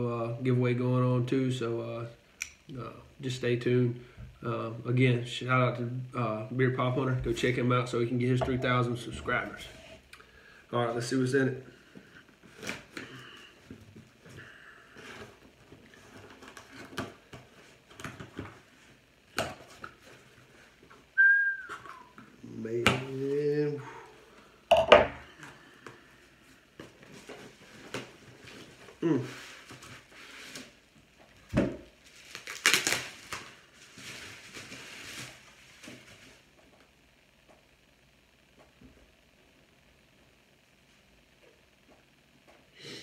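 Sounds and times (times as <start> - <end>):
cardboard package rustling: 32.0 - 36.4.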